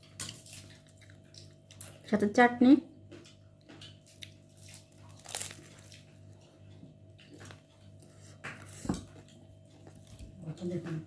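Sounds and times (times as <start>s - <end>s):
person biting and chewing: 3.2s - 10.3s.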